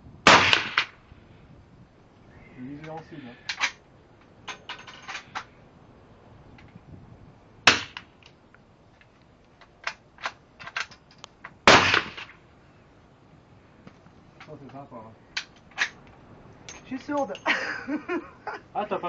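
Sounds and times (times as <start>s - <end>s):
rifle shots with echo: 0.3s - 0.9s, 7.6s - 8.0s, 11.6s - 12.3s
rifle action metallic clicks: 15.4s - 16.1s.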